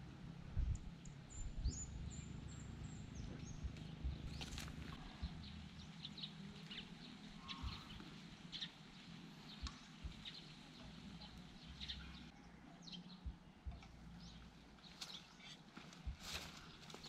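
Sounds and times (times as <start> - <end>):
light rustles in dry grass: 3.7 - 11.7, 13.8 - 17.0.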